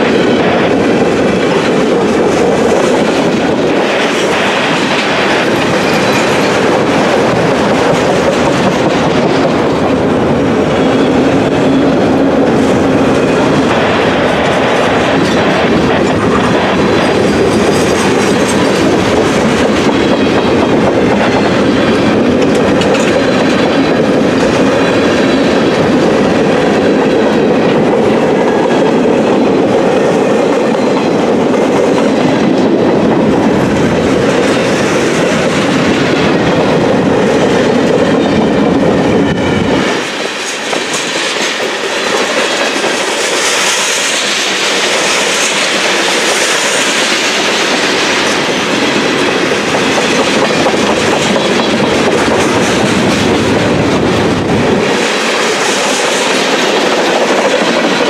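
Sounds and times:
train wheels rumbling on rails: 0.0s - 58.0s.

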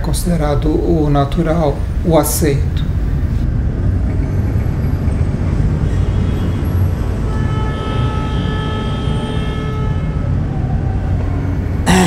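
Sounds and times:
city traffic rumble: 0.0s - 12.0s
vehicle horn honking: 6.1s - 10.2s.

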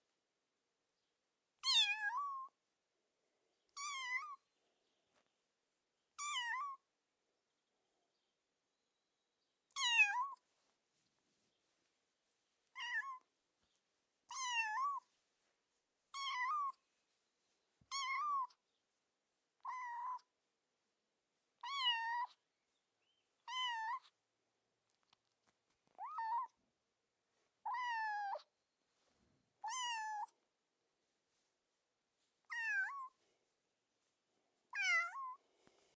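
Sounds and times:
cat meowing: 3.8s - 4.4s, 6.2s - 6.8s, 12.7s - 13.3s, 14.3s - 15.0s, 16.1s - 16.8s, 17.9s - 18.6s, 19.6s - 20.3s, 21.6s - 22.4s, 23.5s - 24.1s, 25.9s - 26.6s, 27.7s - 28.5s, 29.6s - 30.4s, 32.5s - 33.2s, 34.8s - 35.4s.

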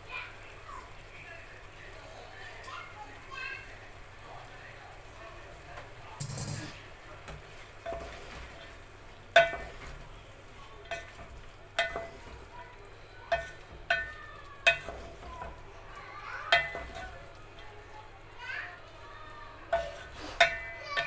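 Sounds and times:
faint frying sizzle: 0.0s - 21.0s
wooden spatula knocking metal pot: 9.3s - 10.1s, 10.8s - 12.6s, 13.3s - 15.7s, 16.4s - 17.7s, 19.7s - 21.0s.

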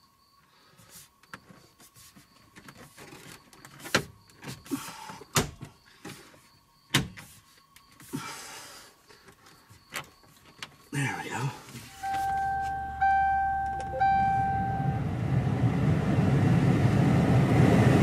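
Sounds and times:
plastic rubbing and scraping: 0.9s - 4.6s.

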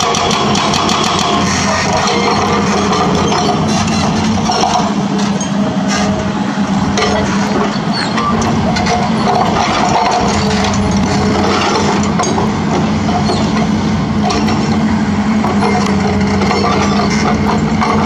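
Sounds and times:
excavator diesel engine running: 0.0s - 18.0s.

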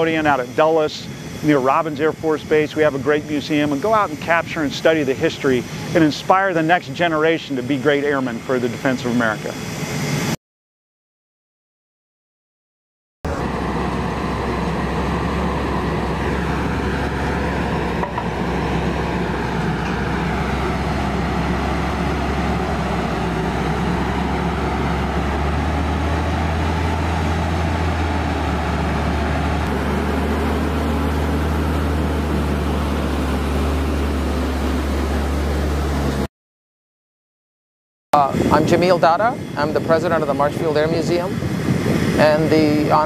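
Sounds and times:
tow tractor engine droning: 0.0s - 9.5s, 13.2s - 36.3s.

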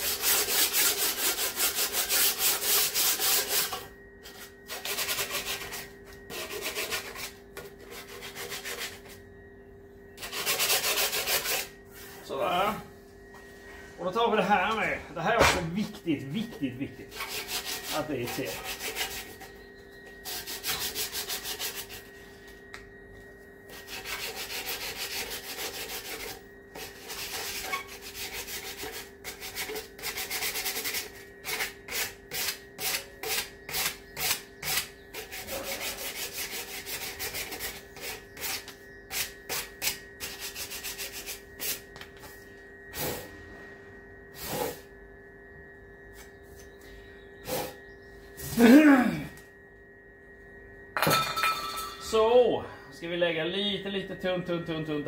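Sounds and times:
hand rubbing metal: 15.9s - 19.6s.

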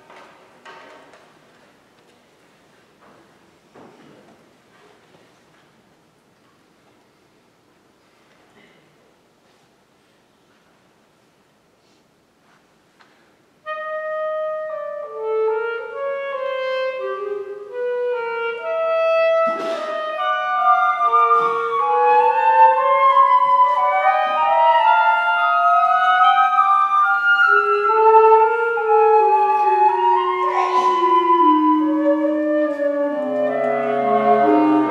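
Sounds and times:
woodwind quintet playing: 13.6s - 34.9s.

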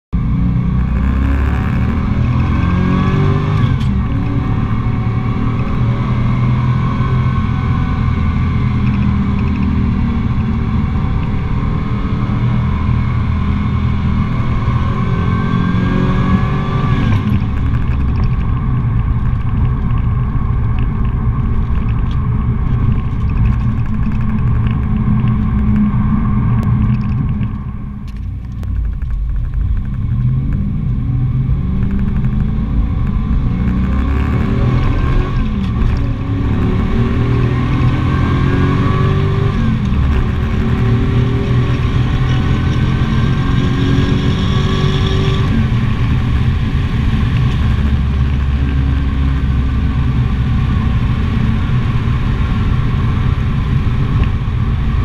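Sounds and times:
car engine revving: 0.2s - 55.0s.

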